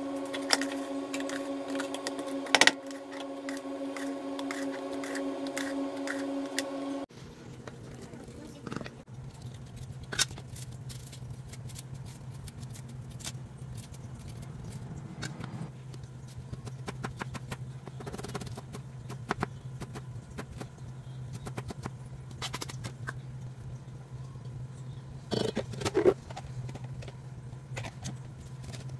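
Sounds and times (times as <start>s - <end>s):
steady low hum: 0.0s - 10.0s, 10.6s - 18.0s.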